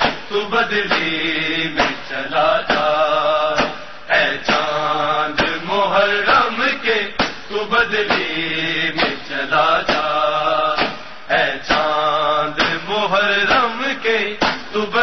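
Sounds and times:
mourning lament chanting: 0.0s - 15.0s
sharp beats: 1.8s - 6.6s.

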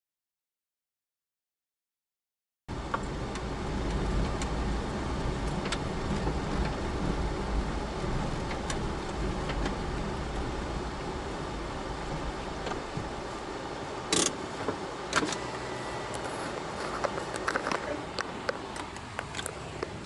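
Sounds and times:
car engine and road rumble: 2.7s - 20.0s
stones clicking under tyres: 8.2s - 10.5s, 16.5s - 20.0s.

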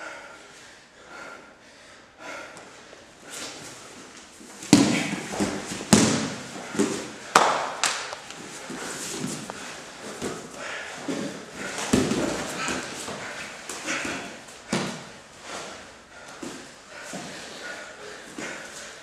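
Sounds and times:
heavy breathing: 0.0s - 7.4s, 8.3s - 19.0s
bodies thudding on mat: 4.6s - 7.1s, 8.7s - 15.1s.

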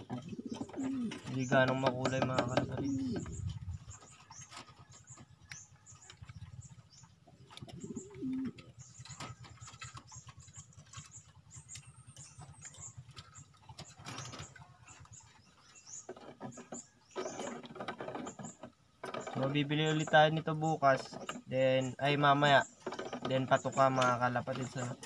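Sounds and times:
pigeons cooing: 0.0s - 5.2s, 6.0s - 15.2s, 16.7s - 19.6s.

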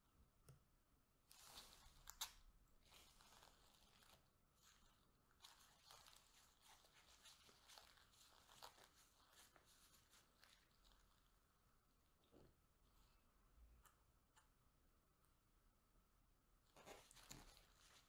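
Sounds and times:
plastic cup crackling: 1.3s - 11.4s, 16.7s - 18.0s.

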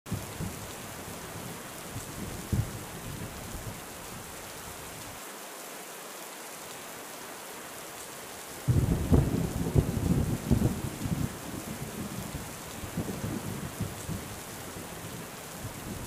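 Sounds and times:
rain falling: 0.1s - 16.0s
thunder rumbles: 1.4s - 3.8s, 8.6s - 16.0s.

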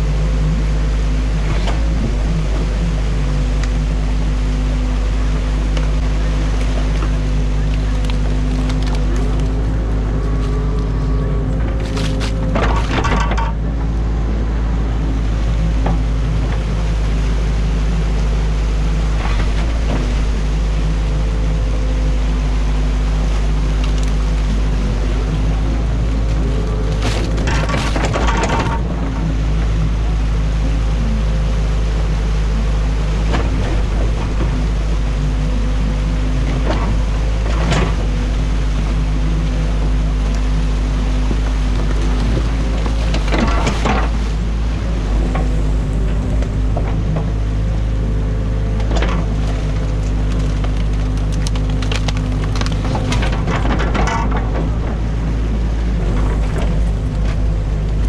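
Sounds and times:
diesel engine running: 0.0s - 58.0s
sticks cracking and snapping: 6.6s - 9.7s, 11.6s - 13.2s, 23.8s - 24.5s, 26.7s - 28.6s, 48.9s - 53.4s.

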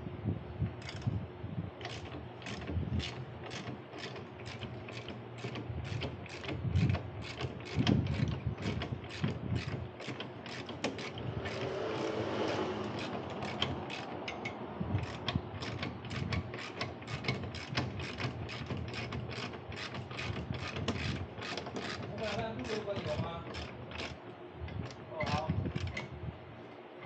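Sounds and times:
ratchet wrench clicking: 1.8s - 22.9s.

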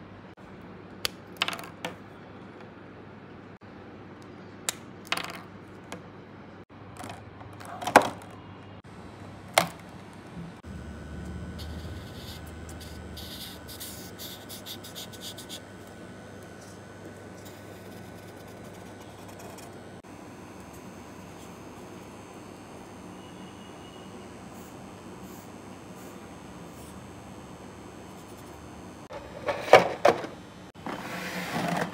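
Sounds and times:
marker nib scratching paper: 11.6s - 15.7s, 16.6s - 19.7s.

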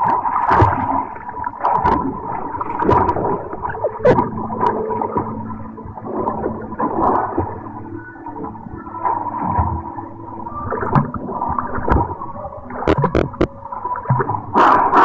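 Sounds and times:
water splashing from swimmer: 0.0s - 5.4s, 10.6s - 15.0s
steady hum: 0.0s - 15.0s.

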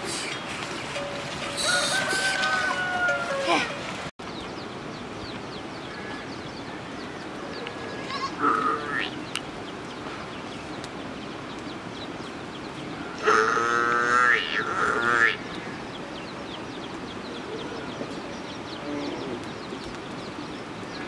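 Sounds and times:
farm animal bleating: 8.0s - 9.2s.

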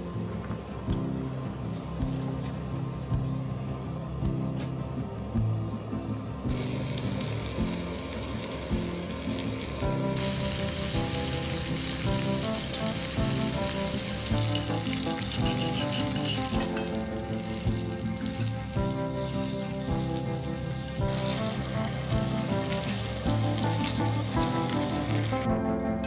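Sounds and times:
background music: 0.0s - 26.0s
food sizzling in a pan: 6.4s - 25.5s.

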